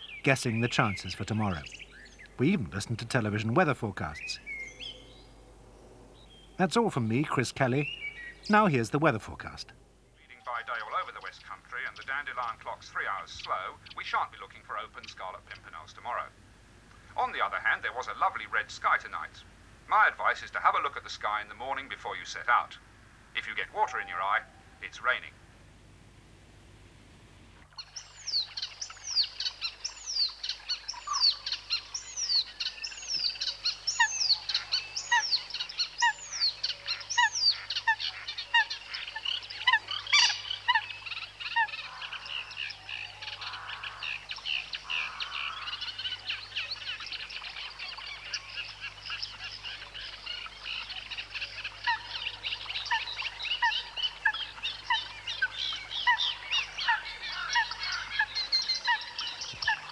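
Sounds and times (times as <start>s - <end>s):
dense bird chirping: 0.0s - 16.3s, 27.6s - 59.9s.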